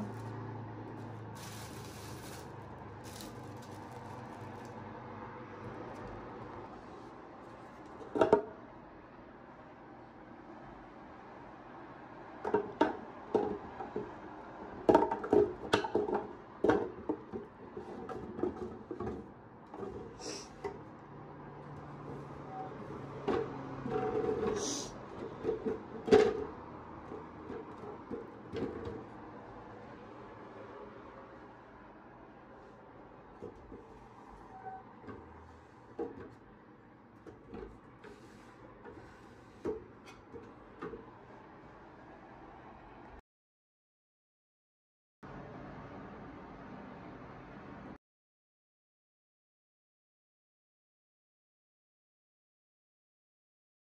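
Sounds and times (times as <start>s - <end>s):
bin sliding on metal frame: 21.8s - 29.2s, 37.3s - 41.1s.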